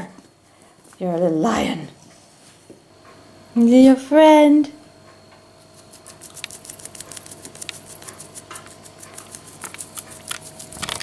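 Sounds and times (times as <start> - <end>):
puppy claws clicking on tiles: 5.8 - 11.0.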